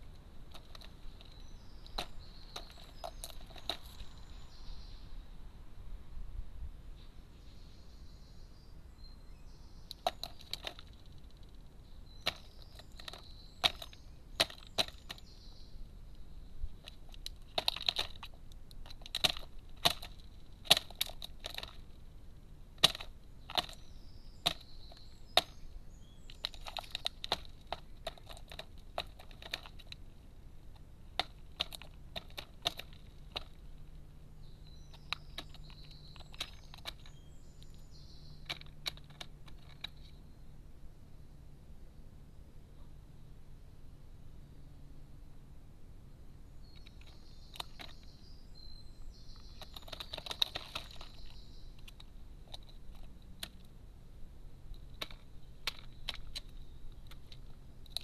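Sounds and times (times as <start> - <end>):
crow pecking at nut shells: 0.0 - 4.2, 9.9 - 15.4, 16.1 - 40.2, 46.7 - 48.2, 49.2 - 53.8, 54.5 - 58.0.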